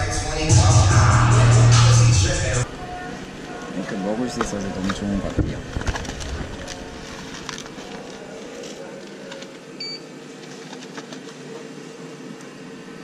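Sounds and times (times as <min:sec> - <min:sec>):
electrical hum: 0:00.0 - 0:13.0
paper trays rustling: 0:03.8 - 0:09.6, 0:10.3 - 0:11.6.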